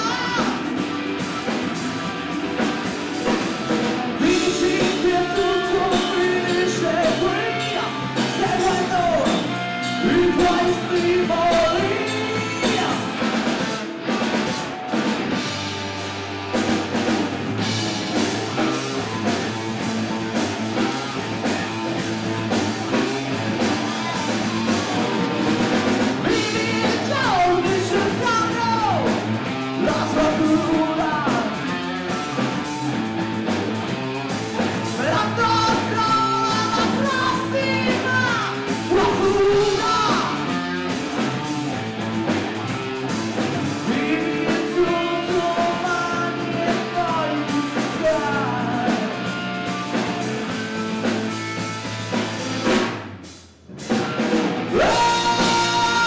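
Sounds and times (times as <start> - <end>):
man singing: 0.0 - 0.8, 4.1 - 13.3, 26.2 - 31.9, 34.8 - 40.5, 43.7 - 49.4, 54.7 - 56.0
distorted electric guitar: 0.0 - 56.0
drum kit: 0.0 - 56.0
electric bass: 0.0 - 56.0.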